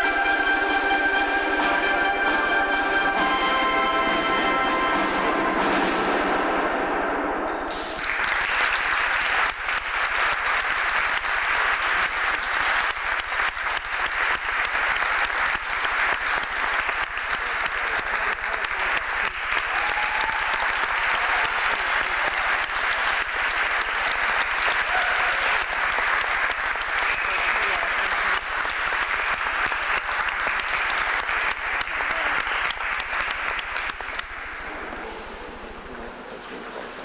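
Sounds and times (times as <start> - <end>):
concert band note: 0.0 - 8.1
audience applause: 7.7 - 37.0.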